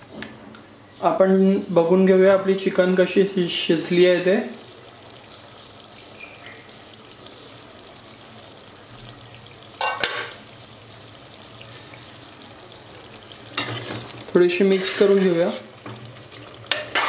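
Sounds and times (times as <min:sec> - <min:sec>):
curry sizzling in a pot: 0:02.4 - 0:17.0
metal lid clatter: 0:09.8 - 0:10.4.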